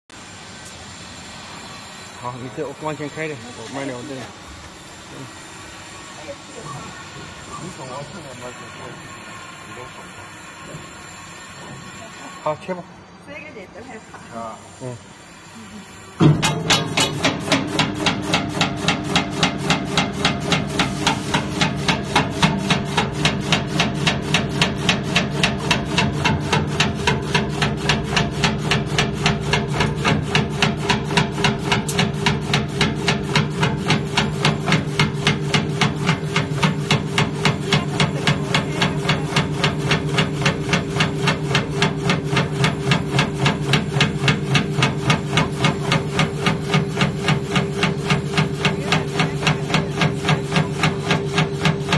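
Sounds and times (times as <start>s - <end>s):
meat slicer motor hum: 16.3s - 51.9s.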